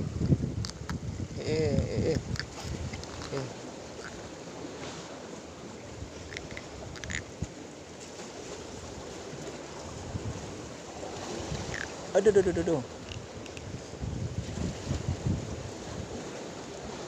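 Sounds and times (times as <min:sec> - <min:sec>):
sea noise: 0:00.0 - 0:17.0
wind: 0:00.0 - 0:17.0
faint clicks: 0:06.3 - 0:07.2.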